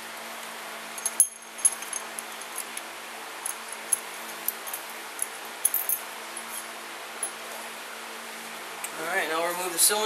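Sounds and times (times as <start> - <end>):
metal hand tool and washers clinking: 1.0 - 2.8, 3.4 - 6.0.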